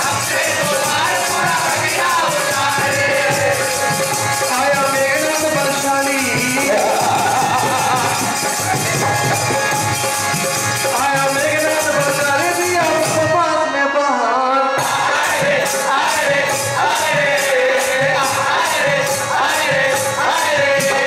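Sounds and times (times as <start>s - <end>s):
hand drum: 0.0s - 13.4s
harmonium: 0.0s - 21.0s
men singing: 0.0s - 21.0s.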